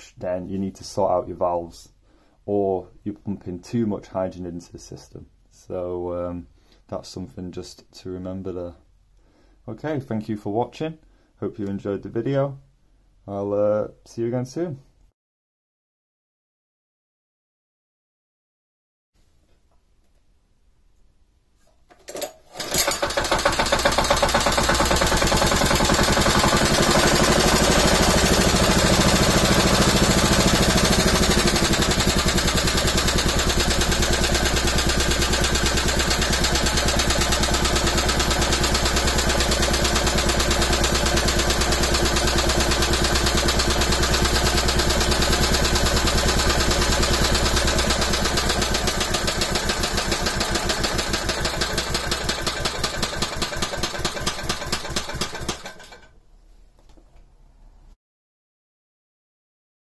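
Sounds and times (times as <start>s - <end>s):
single-cylinder engine running: 22.6s - 56.0s.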